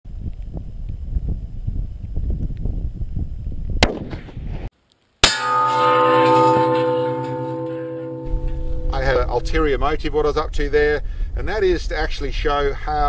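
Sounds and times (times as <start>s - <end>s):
wind on microphone: 0.1s - 4.7s
sharp crack: 5.2s - 9.6s
bullet hitting steel plate clang: 5.2s - 9.7s
steel plate ringing: 5.2s - 9.8s.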